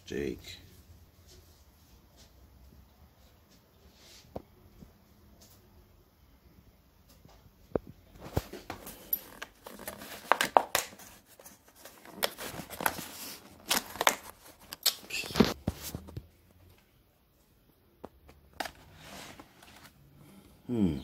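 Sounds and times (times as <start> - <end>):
plastic lid crackling and snapping: 9.4 - 11.0, 13.6 - 15.6.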